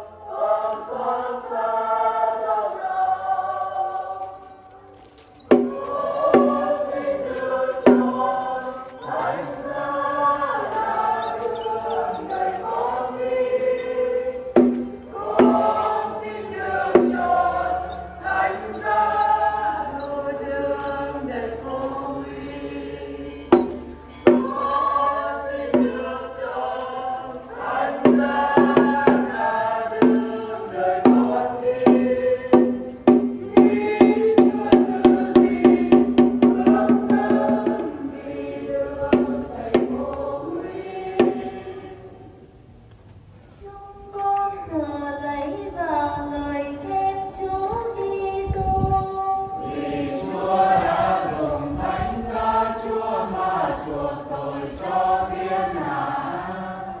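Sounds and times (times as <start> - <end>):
group singing a hymn: 0.0 - 42.8, 46.5 - 57.0
sharp percussive strokes: 14.6 - 15.9, 30.0 - 30.4, 31.1 - 38.0.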